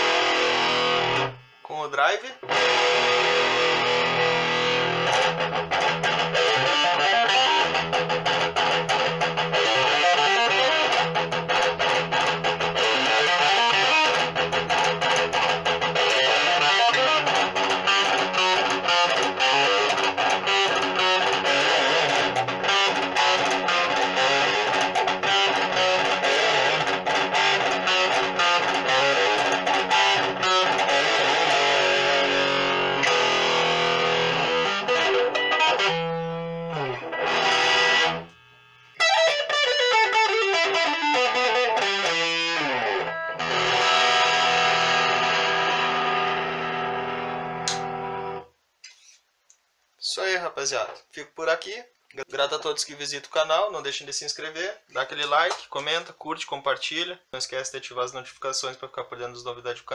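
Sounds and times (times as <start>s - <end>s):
distorted electric guitar riff: 0.0s - 49.1s.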